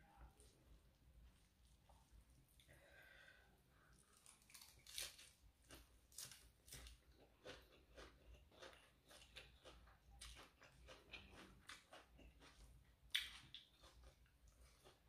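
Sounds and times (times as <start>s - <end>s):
chewing wet smacks: 7.4s - 15.0s.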